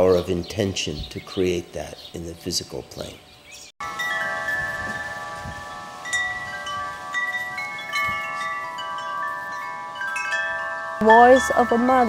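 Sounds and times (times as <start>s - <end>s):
chimes ringing: 3.8s - 12.0s.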